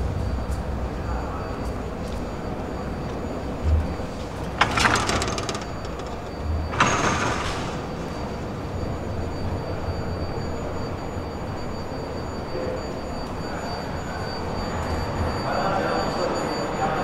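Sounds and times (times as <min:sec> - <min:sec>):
ticket gates hissing: 0:04.4 - 0:08.6.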